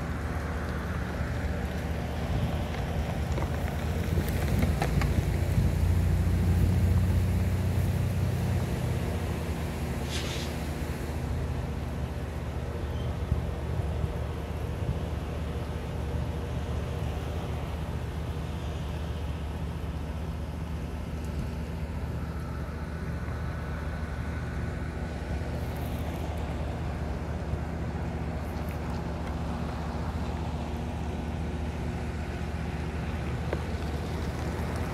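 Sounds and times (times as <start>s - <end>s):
train machinery idling hum: 5.9s - 34.9s.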